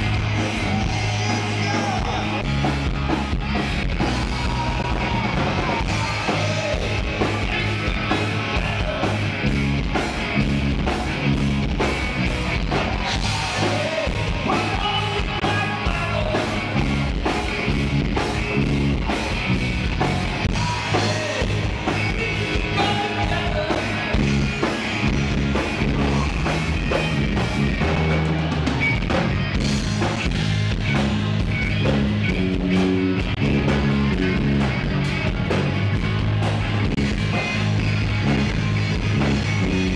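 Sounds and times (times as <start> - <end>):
drum kit beat: 0.0 - 39.9
electric guitar: 0.0 - 39.9
rock band playing: 0.0 - 39.9
person singing: 0.4 - 2.8, 4.0 - 9.4, 12.7 - 16.9, 20.4 - 24.8.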